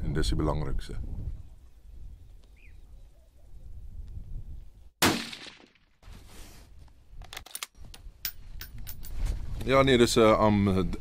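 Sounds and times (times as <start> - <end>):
rifle shot: 5.0 - 5.8.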